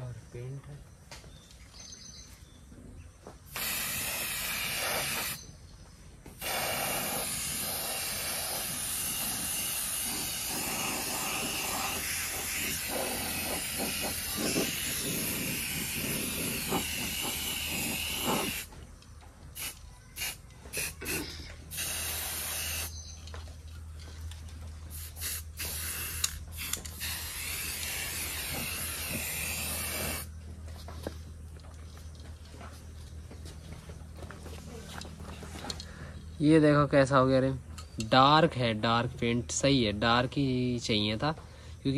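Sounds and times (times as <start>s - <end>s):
aerosol spray can spraying: 3.5s - 5.4s, 6.3s - 18.7s, 19.6s - 23.0s, 24.9s - 30.3s.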